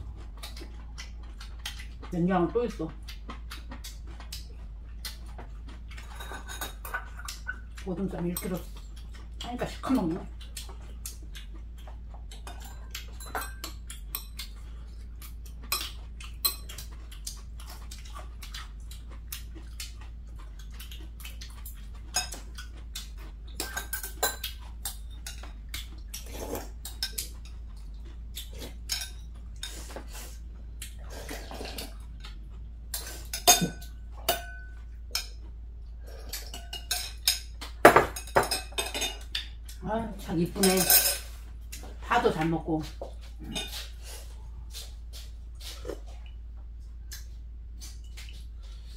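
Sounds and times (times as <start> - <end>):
utensils clinking on ceramic bowls: 6.0 - 8.7, 12.4 - 14.5, 23.6 - 25.5, 28.9 - 29.8, 32.9 - 35.4, 36.3 - 39.5, 40.4 - 41.4.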